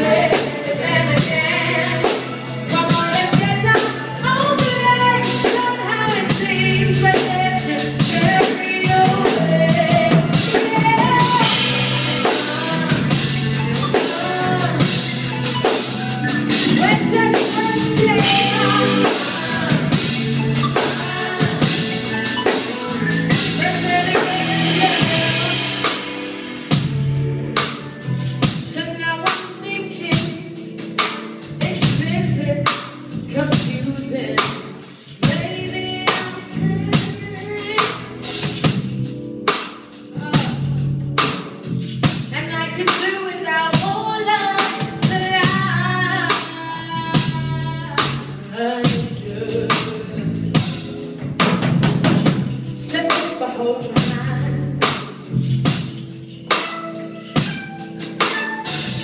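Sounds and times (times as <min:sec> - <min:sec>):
woman singing: 0:00.0 - 0:26.1, 0:28.6 - 0:30.8, 0:31.6 - 0:38.4, 0:40.2 - 0:40.7, 0:42.3 - 0:50.8, 0:52.8 - 0:55.1
electric guitars: 0:00.0 - 0:28.6
drum kit: 0:00.0 - 0:59.0.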